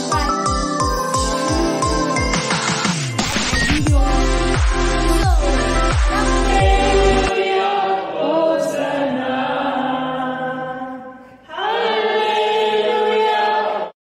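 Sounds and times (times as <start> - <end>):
choir singing held notes: 3.9 - 13.9.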